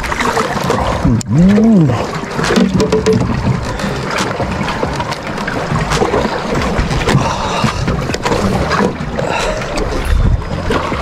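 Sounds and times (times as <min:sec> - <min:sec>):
water noise around boat: 0:00.0 - 0:11.0
wind: 0:00.0 - 0:11.0
knocks and clatter on board: 0:02.3 - 0:09.0.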